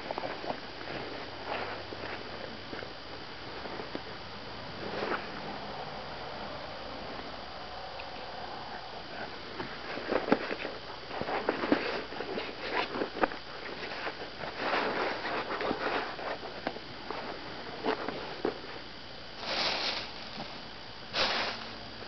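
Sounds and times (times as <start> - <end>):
irregular rustling: 0.0 - 4.1, 9.1 - 21.8.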